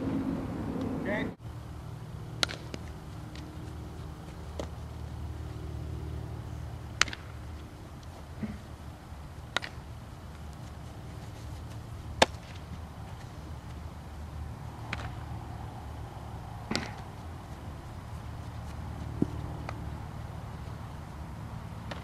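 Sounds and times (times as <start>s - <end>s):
ball smacking into glove: 2.4s - 3.5s, 7.0s - 7.3s, 11.4s - 12.9s, 16.7s - 17.1s.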